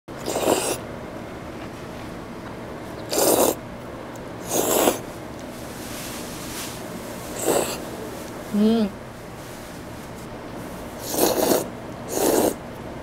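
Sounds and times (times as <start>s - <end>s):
low room noise: 0.1s - 13.0s
person slurping noodles: 0.2s - 0.8s, 3.0s - 3.6s, 4.4s - 5.0s, 7.4s - 7.8s, 11.0s - 12.6s.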